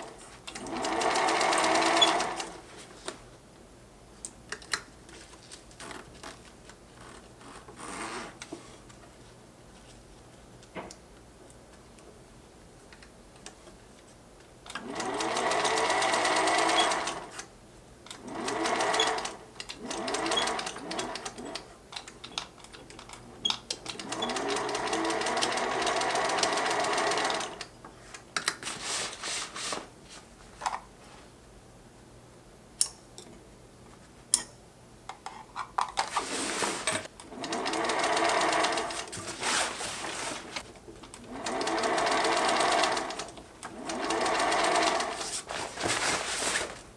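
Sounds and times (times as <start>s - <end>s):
sewing machine stitching: 0.0s - 2.6s, 14.7s - 17.4s, 18.2s - 21.7s, 23.4s - 27.6s, 36.6s - 40.4s, 41.2s - 45.4s.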